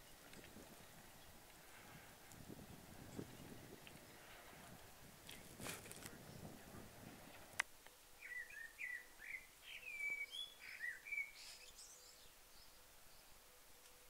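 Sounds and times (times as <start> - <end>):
songbird singing: 0.0 - 14.0.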